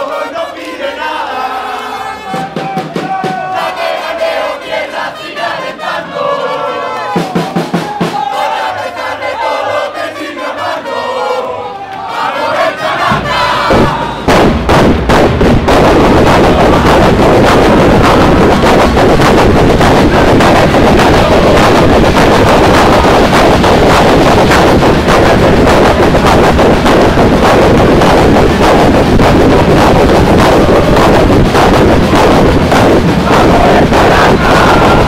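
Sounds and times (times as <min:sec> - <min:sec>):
crowd chanting: 0:00.0 - 0:14.6, 0:15.6 - 0:35.0
rapid sharp hits: 0:12.2 - 0:35.0.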